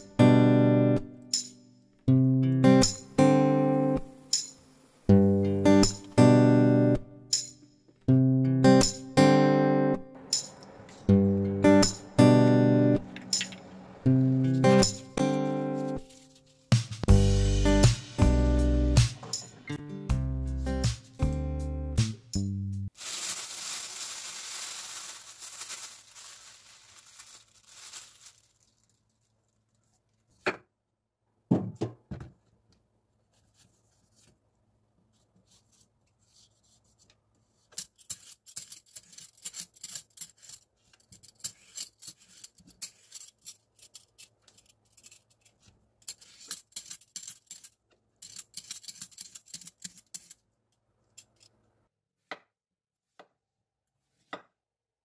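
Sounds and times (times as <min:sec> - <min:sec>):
plastic bag rustling: 0:15.4 - 0:16.7, 0:22.9 - 0:29.7
peeler scraping vegetable skin: 0:37.6 - 0:50.4.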